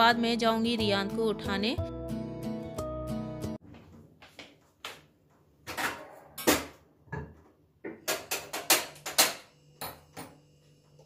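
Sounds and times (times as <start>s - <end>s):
clicks and knocks of kitchen things: 4.4s - 10.4s.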